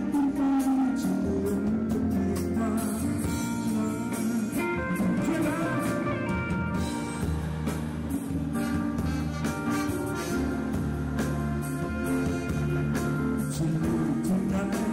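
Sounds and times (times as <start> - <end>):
man singing: 0.0 - 7.3, 11.8 - 14.9
drums: 0.0 - 14.9
electric bass: 0.0 - 14.9
keyboard: 0.0 - 14.9.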